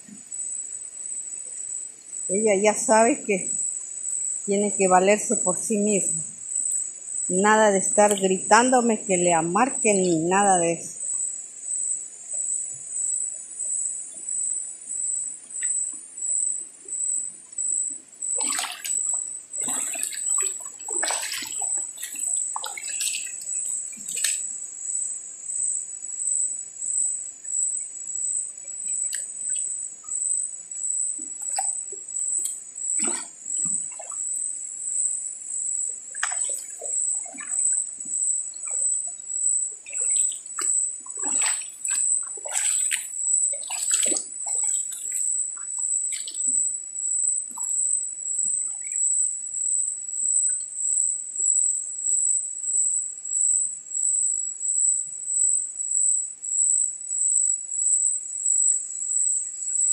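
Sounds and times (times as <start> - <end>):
cicadas and crickets buzzing: 0.0 - 59.9
stream splashing and trickling: 17.9 - 24.6, 28.6 - 29.8, 31.2 - 34.4, 35.9 - 46.8, 47.4 - 47.8, 48.4 - 49.0.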